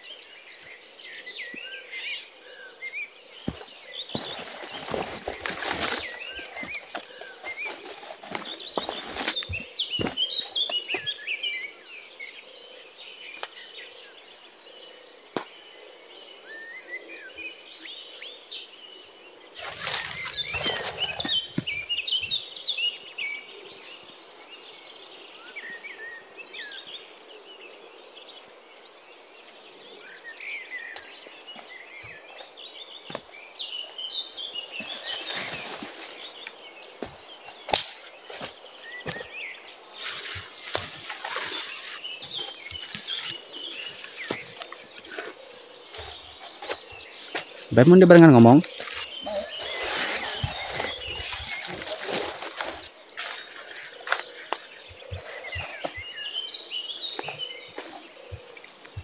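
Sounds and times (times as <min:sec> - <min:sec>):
high insect tone: 0:00.0 - 0:59.0
small birds chirping: 0:00.0 - 0:59.0
leaves and stems rustling: 0:03.4 - 0:11.2, 0:19.6 - 0:22.2, 0:34.6 - 0:56.0.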